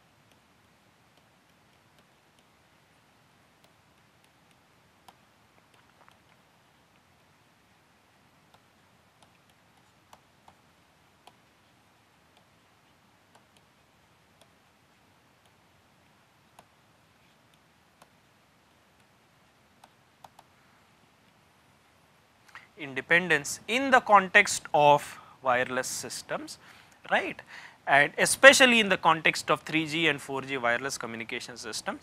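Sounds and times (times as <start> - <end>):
stylus tapping tablet screen: 8.4 - 20.5.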